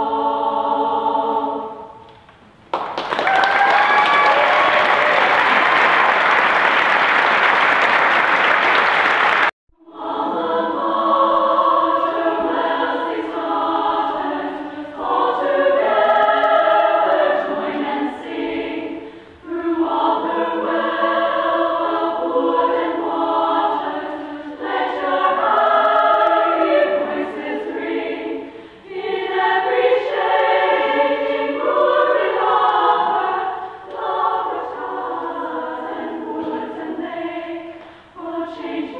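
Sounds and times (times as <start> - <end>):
choir singing: 0.0 - 2.1, 9.3 - 38.9
applause: 2.7 - 9.5.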